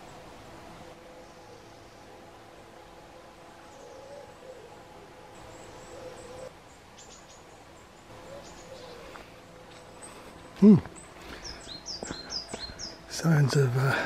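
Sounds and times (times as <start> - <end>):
small birds chirping: 3.6 - 14.0.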